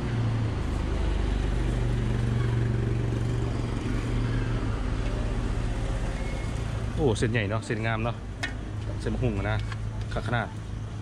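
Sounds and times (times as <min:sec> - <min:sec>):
minivan engine driving past: 0:00.0 - 0:07.0.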